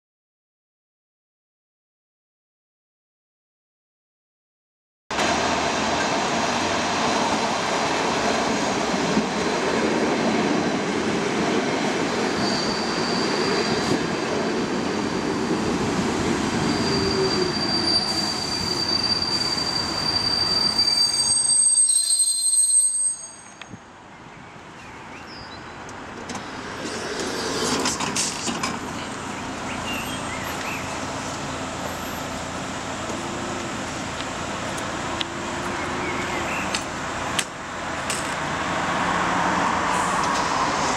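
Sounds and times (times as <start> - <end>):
standing train hum: 5.2 - 40.9
high wheel squeal: 12.0 - 14.1, 14.7 - 23.8
train wheels on rails: 25.8 - 40.9.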